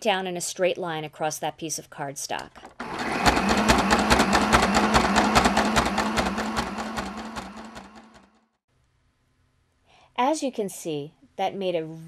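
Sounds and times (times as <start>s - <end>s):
sewing machine motor hum: 2.6s - 8.4s.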